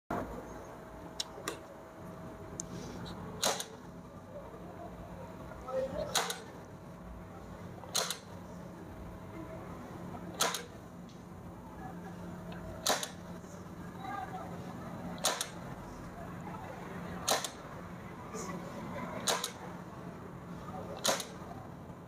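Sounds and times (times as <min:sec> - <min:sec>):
push button and relay clicks: 0:03.4 - 0:03.8, 0:06.1 - 0:06.5, 0:07.9 - 0:08.3, 0:10.3 - 0:10.8, 0:12.5 - 0:13.2, 0:15.2 - 0:15.6, 0:17.2 - 0:17.6, 0:19.2 - 0:19.6, 0:21.0 - 0:21.4.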